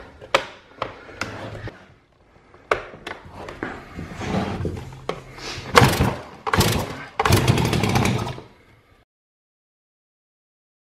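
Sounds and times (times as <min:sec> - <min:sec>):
chainsaw engine turning over: 0:05.8 - 0:08.5
chainsaw pull-start clicks: 0:05.8 - 0:08.5.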